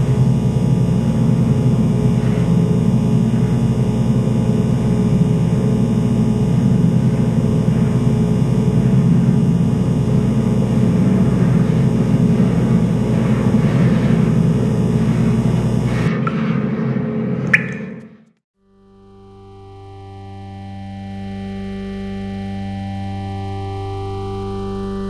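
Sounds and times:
low rumbling ambient drone: 0:00.0 - 0:18.4.

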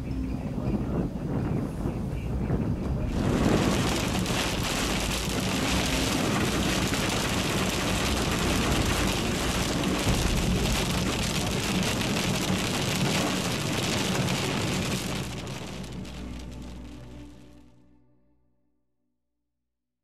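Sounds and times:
car road noise: 0:00.5 - 0:17.6
heavy rain on a car: 0:02.4 - 0:17.6.

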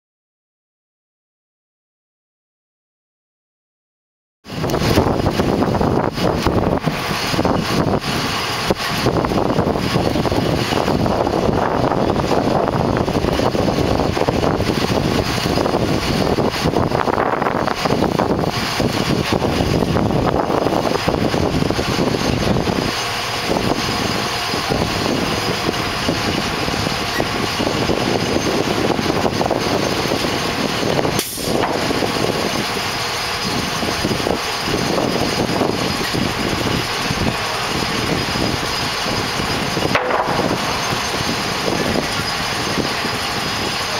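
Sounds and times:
diesel engines running: 0:04.5 - 0:43.9
sharp knock: 0:40.0 - 0:41.5.

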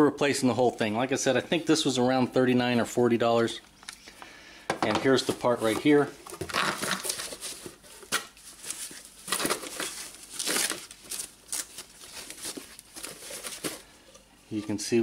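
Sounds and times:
foam packing wrap crinkling: 0:05.1 - 0:14.0.

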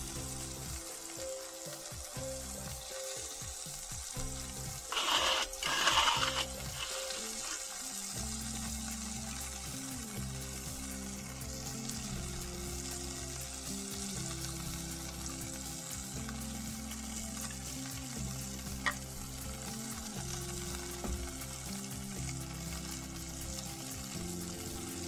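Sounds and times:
burgers sizzling on a griddle: 0:00.0 - 0:25.0.

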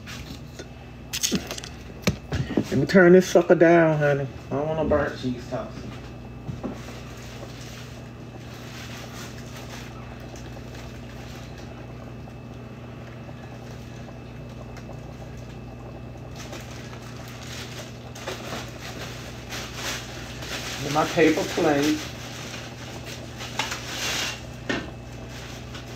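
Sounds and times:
low electrical hum: 0:00.0 - 0:25.9
food sizzling in a pan: 0:17.0 - 0:25.8.

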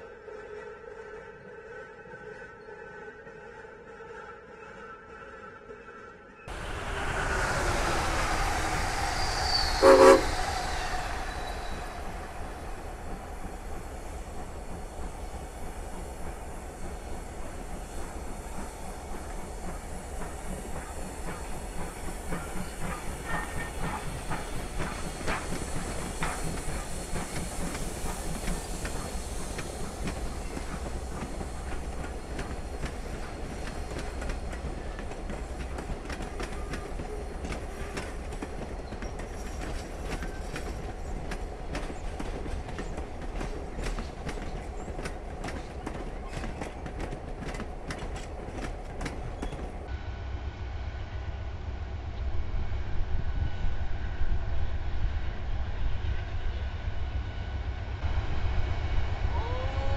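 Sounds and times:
train coaches rumbling: 0:06.5 - 0:59.9
steam train whistle: 0:07.6 - 0:12.9, 0:59.3 - 0:59.9
wheels clacking over rail joints: 0:10.0 - 0:49.9.

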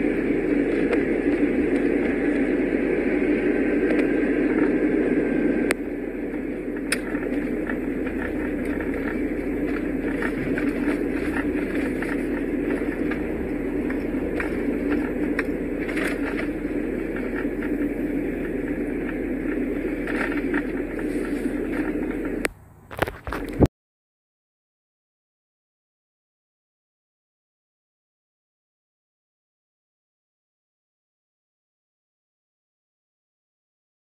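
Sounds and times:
car tyre and engine noise: 0:00.0 - 0:23.7.

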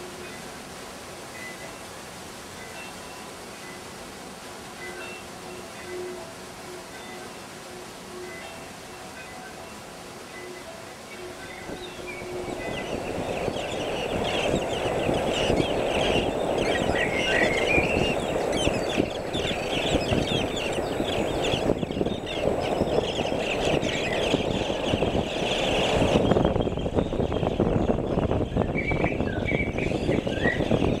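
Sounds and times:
birds chirping in a crowd: 0:10.4 - 0:31.0.

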